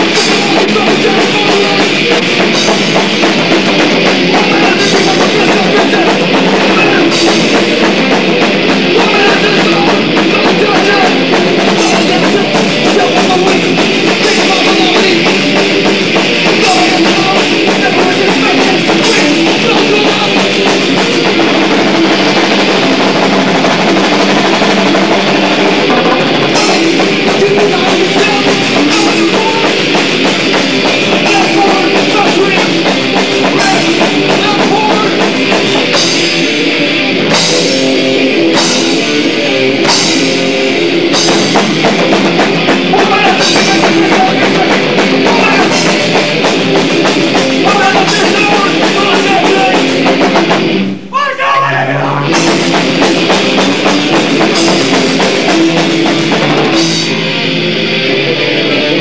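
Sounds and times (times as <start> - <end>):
punk band playing live: 0.0 - 59.0.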